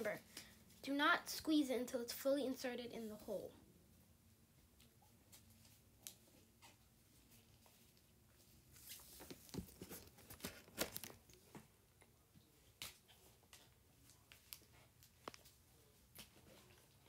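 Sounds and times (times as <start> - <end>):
plastic crinkling and clicking: 9.2 - 11.6, 14.3 - 15.5
sharp plastic crackles: 9.2 - 11.6.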